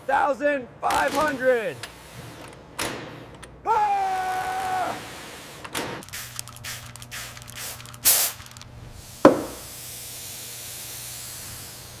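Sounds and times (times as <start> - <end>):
spray bottle squirting: 6.0 - 9.9
single knock: 9.2 - 9.6.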